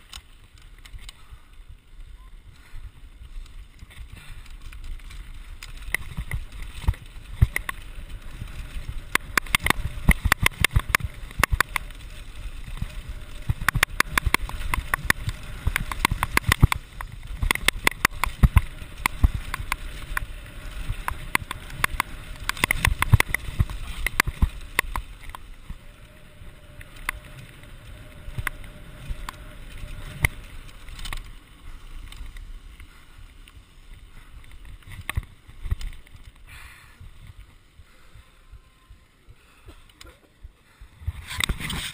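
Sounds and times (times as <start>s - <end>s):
wind and tyre rumble: 0.0s - 41.9s
bike rattling and knocking: 3.6s - 32.2s.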